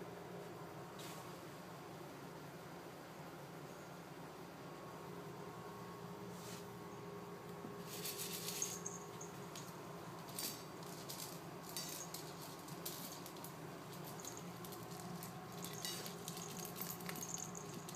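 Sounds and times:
kibble clinking on metal bowl: 8.0 - 17.9
kitten crunching kibble: 9.5 - 17.9.

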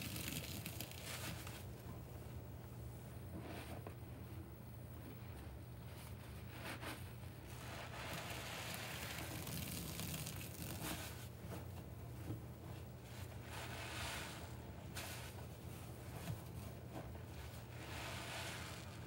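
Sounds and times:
soapy water pouring into sink: 0.0 - 1.2, 7.9 - 11.0
sponges squelching in suds: 7.6 - 11.2.

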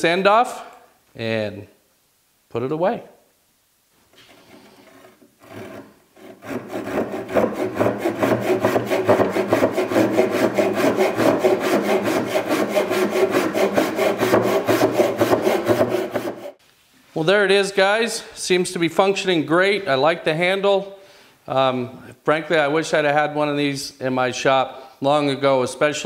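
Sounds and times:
hand saw cutting wood: 4.2 - 16.6.

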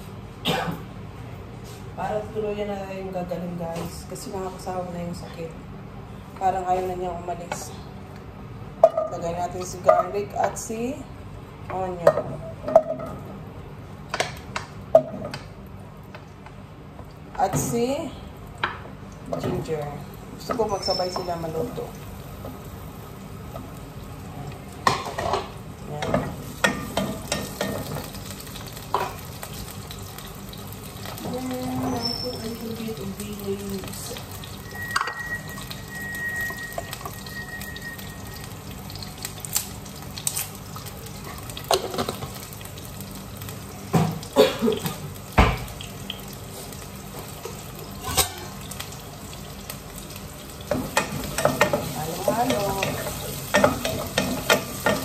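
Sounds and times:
food sizzling in oil: 19.0 - 55.0.

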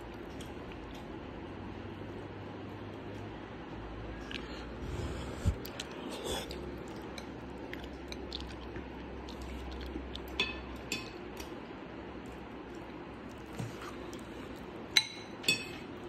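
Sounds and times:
chewing: 5.4 - 11.6.

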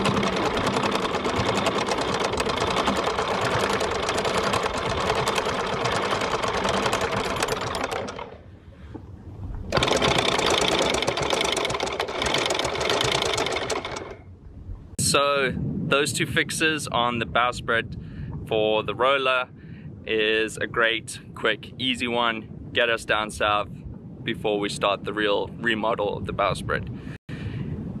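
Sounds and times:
chain rattling over roller: 0.0 - 8.4, 9.7 - 14.2
electric anchor windlass running: 0.0 - 15.0.

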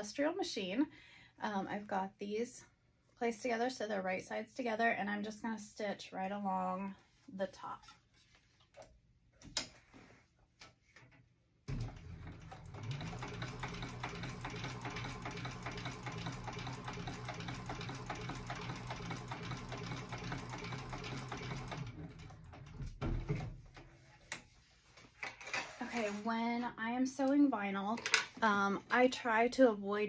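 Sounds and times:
sewing machine stitching: 11.7 - 23.5.

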